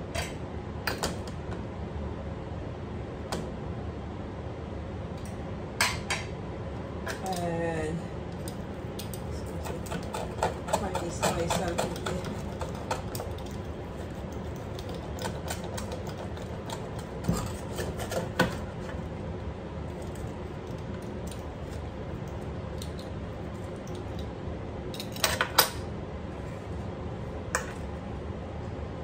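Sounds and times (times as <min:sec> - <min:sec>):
pizza cutter scraping metal tray: 0:09.6 - 0:13.0, 0:14.8 - 0:18.9.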